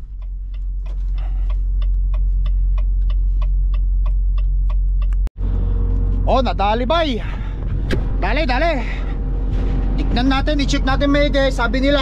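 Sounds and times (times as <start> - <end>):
light regular ticking: 0.0 - 5.3
diesel engine idling: 0.0 - 12.0.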